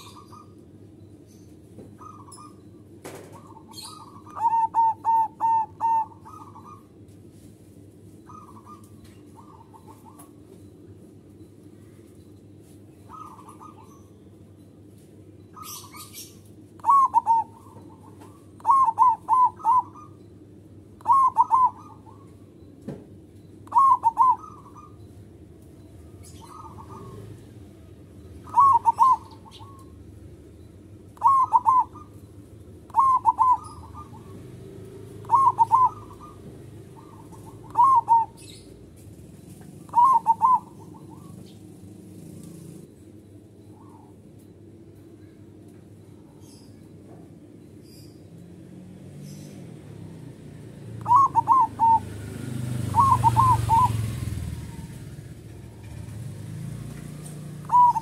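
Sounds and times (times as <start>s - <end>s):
dove cooing: 0.0s - 0.7s, 1.9s - 7.0s, 8.2s - 10.5s, 13.0s - 14.1s, 15.5s - 20.3s, 21.0s - 22.7s, 23.6s - 25.4s, 26.1s - 30.1s, 31.0s - 42.9s, 49.2s - 58.0s.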